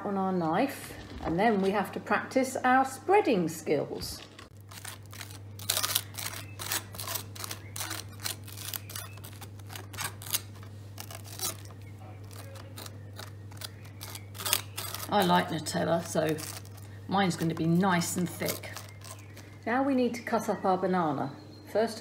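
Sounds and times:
knife scraping toast: 0:04.5 - 0:16.8.

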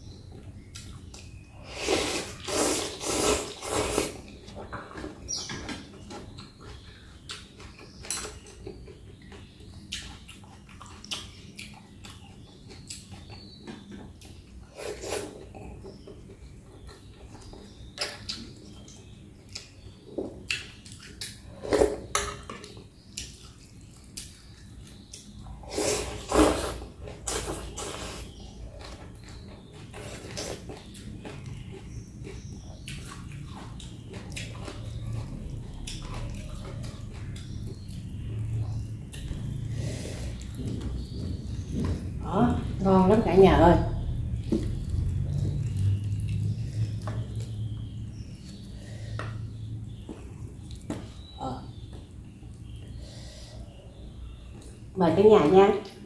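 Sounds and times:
slurping noodles and broth: 0:01.6 - 0:04.4, 0:25.6 - 0:28.4.

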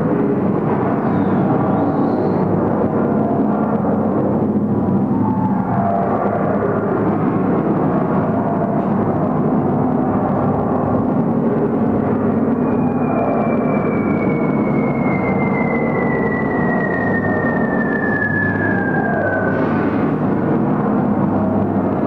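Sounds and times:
droning aircraft rumble: 0:00.0 - 0:22.0
falling pitch whistle: 0:12.6 - 0:19.8.

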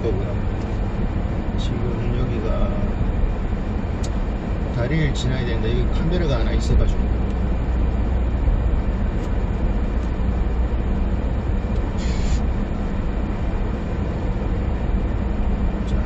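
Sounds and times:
diesel engine and tyre drone: 0:00.0 - 0:16.0
brief hiss: 0:12.0 - 0:12.6.

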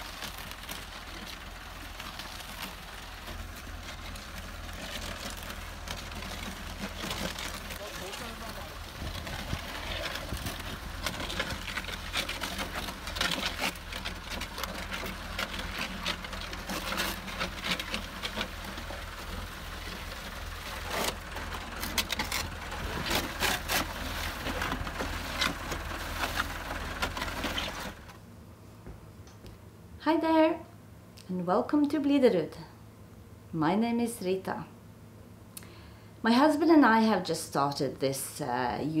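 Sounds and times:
paddles churning wet concrete: 0:00.0 - 0:28.1
concrete mixer humming: 0:00.0 - 0:28.2.

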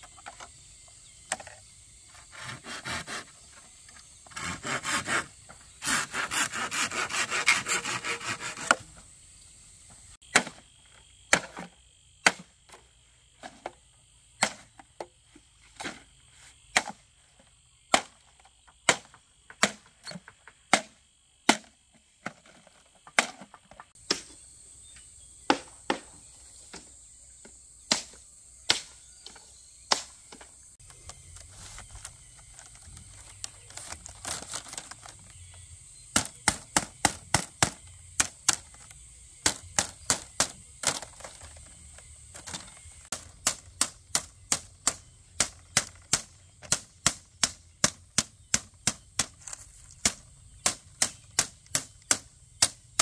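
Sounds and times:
high insect drone: 0:00.0 - 0:53.0
bamboo knocks and clacks: 0:01.2 - 0:01.6, 0:10.3 - 0:12.8, 0:14.4 - 0:16.1, 0:16.7 - 0:17.1, 0:17.9 - 0:24.4, 0:25.5 - 0:35.4, 0:36.1 - 0:53.0.

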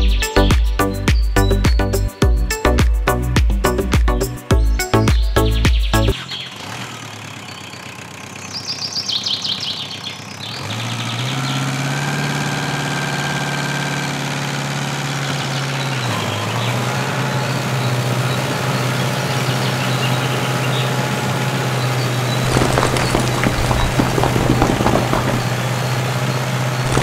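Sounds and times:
model tractor humming: 0:06.8 - 0:08.8.

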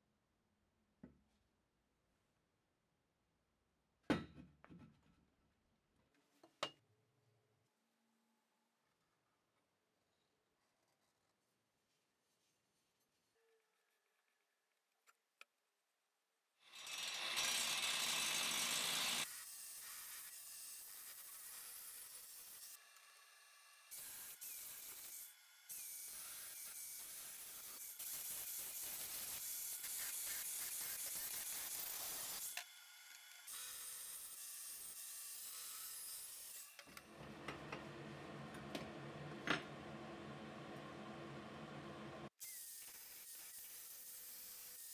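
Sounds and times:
angle grinder cutting metal: 0:16.6 - 0:36.8, 0:42.4 - 0:44.9.

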